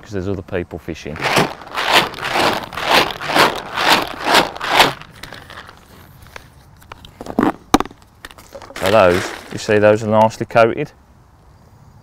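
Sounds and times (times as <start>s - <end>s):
biscuits rattling in plastic bucket: 1.1s - 6.0s, 8.4s - 9.9s.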